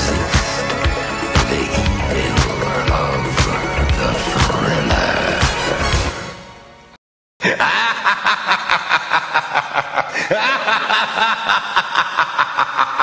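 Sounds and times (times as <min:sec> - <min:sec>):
rapid high cackling laugh: 0:07.4 - 0:13.0.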